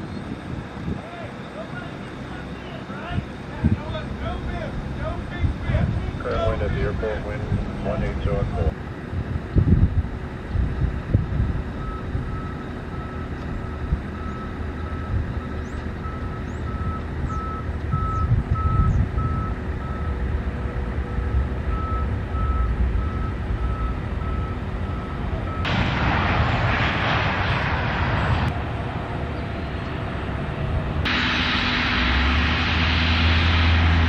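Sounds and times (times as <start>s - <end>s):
low jet rumble: 0.0s - 34.0s
vehicle reversing beeper: 11.4s - 25.7s
loud rushing noise: 25.6s - 34.0s.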